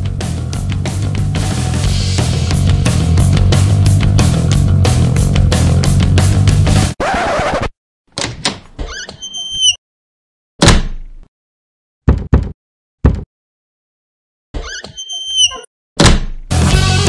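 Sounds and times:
short rising squeak: 0:08.8 - 0:09.8, 0:14.6 - 0:15.7
loud thuds against door: 0:10.6 - 0:11.1, 0:12.1 - 0:13.3, 0:16.0 - 0:16.5
knocks on door: 0:12.1 - 0:13.3.

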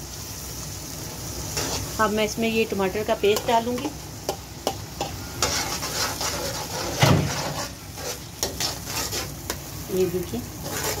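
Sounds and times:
paste sizzling in hot oil: 0:00.0 - 0:11.0
metal spoon scraping pot: 0:05.0 - 0:09.6, 0:10.6 - 0:11.0.

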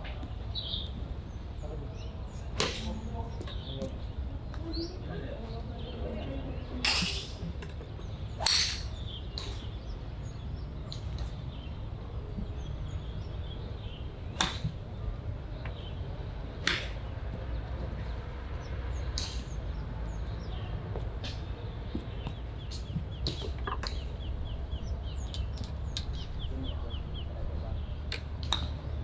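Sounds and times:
golf club striking ball: 0:08.4 - 0:09.5.

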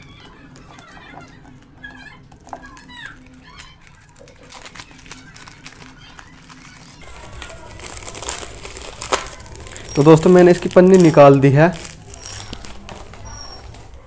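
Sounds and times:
plastic bag crinkling: 0:01.4 - 0:14.0
birds chirping: 0:05.8 - 0:14.0.

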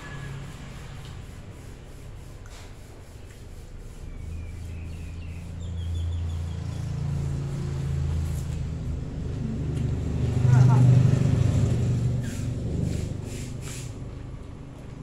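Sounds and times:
road traffic rumble: 0:00.0 - 0:15.0
vehicle approaching: 0:00.0 - 0:15.0
bird chirping: 0:04.0 - 0:07.1.

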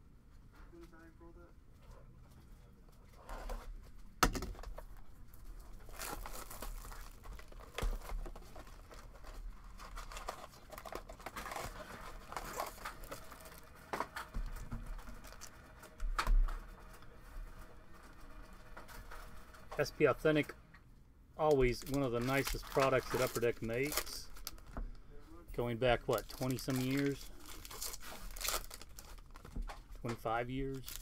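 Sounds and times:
foil packs crinkling: 0:05.4 - 0:16.0, 0:21.4 - 0:24.9, 0:25.5 - 0:31.0.

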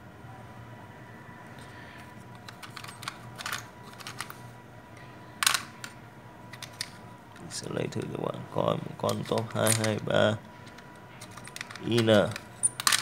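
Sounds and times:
plastic chips clattering: 0:09.0 - 0:10.0, 0:10.7 - 0:13.0.

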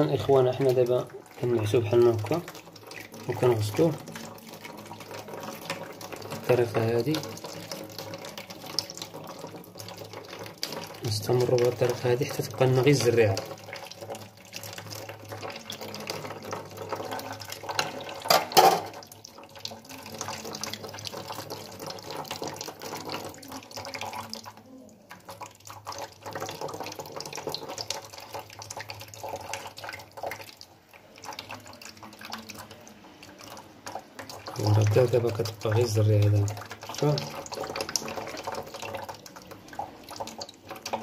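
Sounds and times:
tap water splashing into strainer: 0:00.0 - 0:41.0.

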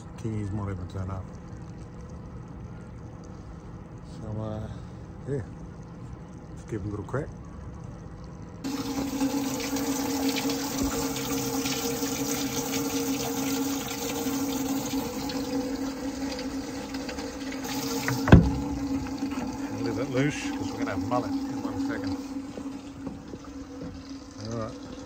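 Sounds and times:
pump humming: 0:00.0 - 0:25.0
water splashing into well: 0:08.6 - 0:25.0
hatch lid thumping shut: 0:17.9 - 0:19.5.

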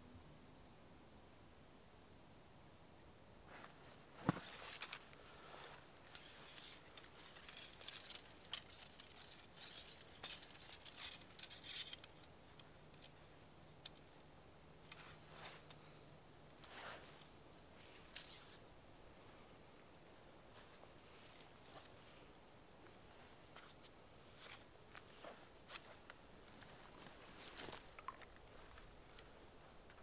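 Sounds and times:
faint low hum: 0:00.0 - 0:30.0
scratchy rustles: 0:03.5 - 0:12.3, 0:17.8 - 0:18.6, 0:20.5 - 0:29.2.

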